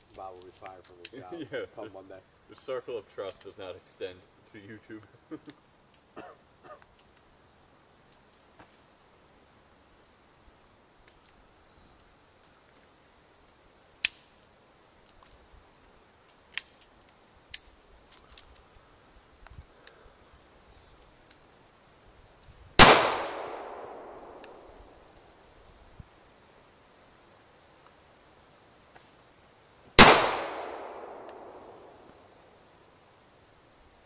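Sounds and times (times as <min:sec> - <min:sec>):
loud gunshot: 0:22.8 - 0:24.4, 0:30.0 - 0:31.9
sharp short crack: 0:30.0 - 0:32.2.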